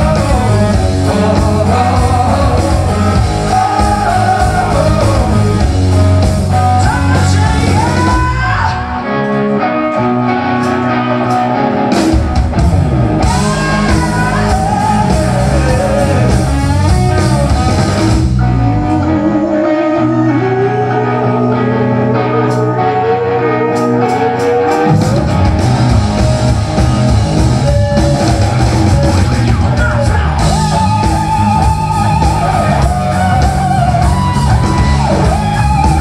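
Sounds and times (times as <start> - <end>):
person singing: 0.0 - 9.1, 13.2 - 17.5, 18.6 - 25.5
live rock band playing: 0.0 - 36.0.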